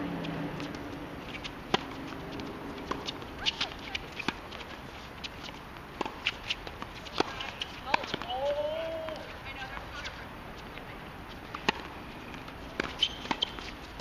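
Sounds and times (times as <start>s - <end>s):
tennis ball struck by rackets: 0.6s - 9.3s, 11.5s - 14.0s.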